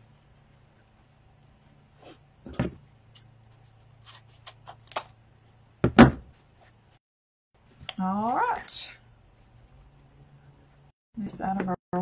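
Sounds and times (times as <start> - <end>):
objects knocking on a table: 5.8 - 6.3.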